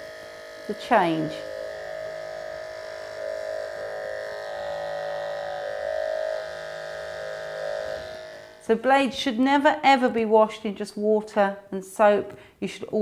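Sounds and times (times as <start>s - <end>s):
electric clippers buzzing in liquid: 0.0s - 10.2s.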